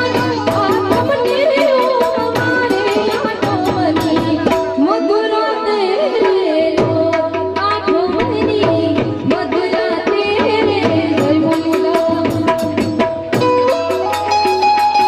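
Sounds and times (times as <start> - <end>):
hand drums: 0.0 - 15.0.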